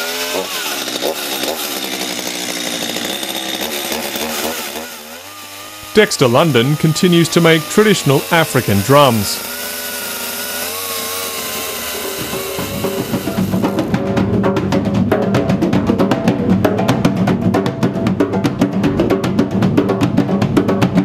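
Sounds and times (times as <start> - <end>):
chainsaw cutting log: 0.0 - 14.0
hand drums fast rhythm: 12.2 - 21.0.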